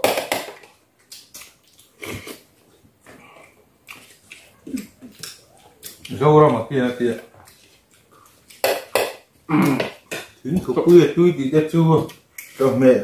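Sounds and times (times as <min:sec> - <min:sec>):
people chewing: 0:00.8 - 0:11.0, 0:12.0 - 0:12.8.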